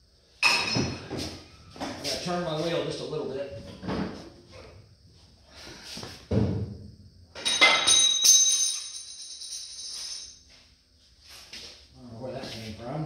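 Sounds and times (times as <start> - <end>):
jingling metallic ring: 7.4 - 10.6.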